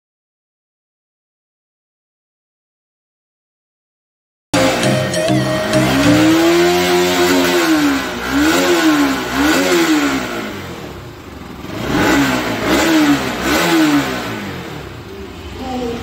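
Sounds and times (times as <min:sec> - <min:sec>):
motorcycle engine revving: 0:04.6 - 0:16.0.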